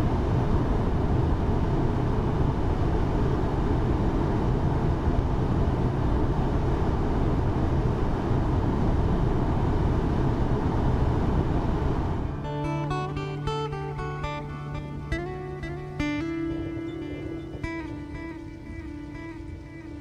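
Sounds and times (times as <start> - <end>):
wind on ship deck: 0.0 - 12.5
acoustic guitar music: 12.2 - 20.0.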